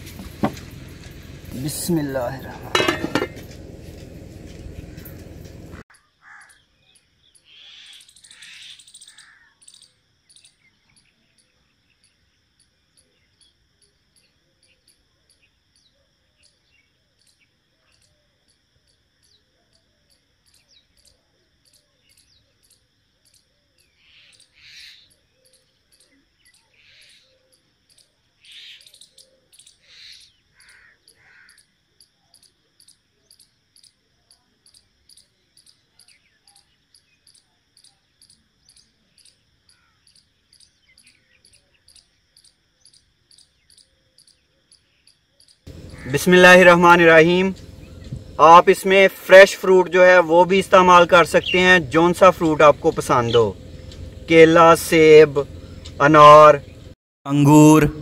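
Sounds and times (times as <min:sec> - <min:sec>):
crickets chirping: 0:00.0 - 0:58.0
bird calls: 0:04.7 - 0:12.1, 0:20.5 - 0:31.7, 0:35.1 - 0:57.0.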